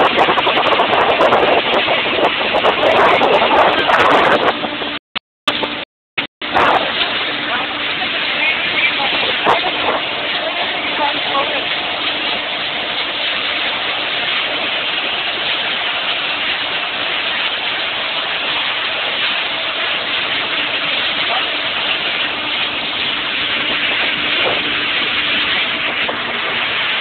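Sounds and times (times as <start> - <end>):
boat engine hum: 0.0 - 27.0
water rushing against hull: 0.0 - 27.0.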